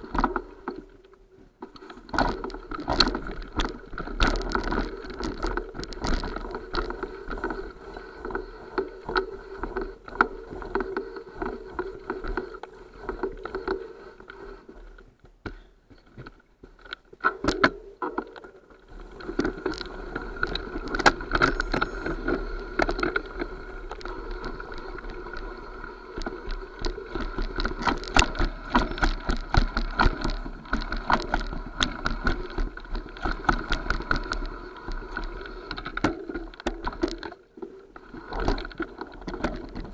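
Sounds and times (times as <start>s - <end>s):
bike rattling over stones: 1.7s - 13.9s, 15.5s - 39.9s
steady hum: 17.3s - 39.9s.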